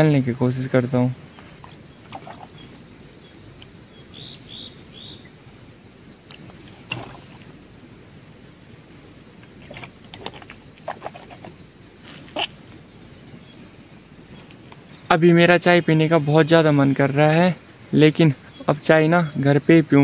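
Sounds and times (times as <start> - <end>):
water splashing: 1.4 - 3.8, 6.2 - 7.8, 9.4 - 12.8.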